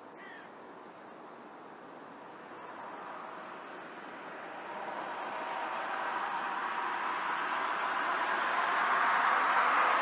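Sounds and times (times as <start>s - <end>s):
train rolling rush: 2.1s - 10.0s.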